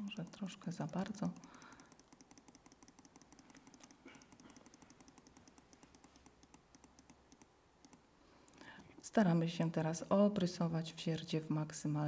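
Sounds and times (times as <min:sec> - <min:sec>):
rapid computer clicking: 0:00.0 - 0:08.6.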